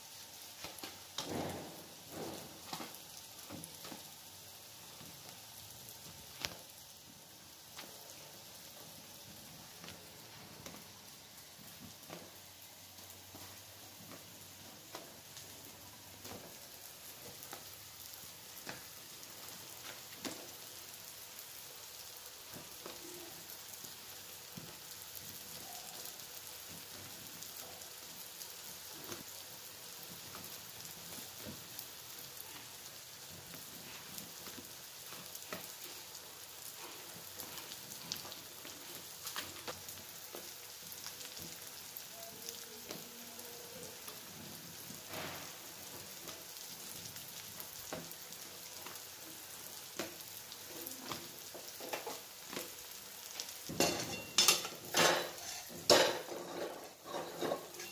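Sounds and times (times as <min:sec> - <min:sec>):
crackles and pops of roasting: 0:00.0 - 0:57.9
gas burner flame hissing: 0:00.0 - 0:57.9
onions frying in a wok: 0:00.0 - 0:57.9.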